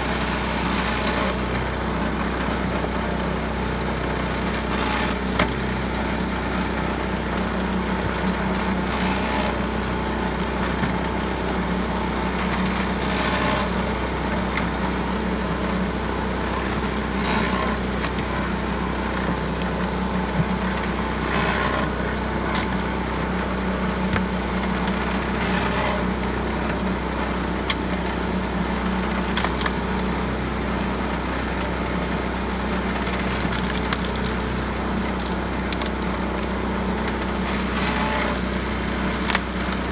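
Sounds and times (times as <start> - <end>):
small engine running: 0.0 - 39.9
wood splitting crunch: 4.8 - 11.2, 16.7 - 26.8, 28.8 - 31.0, 31.6 - 39.9.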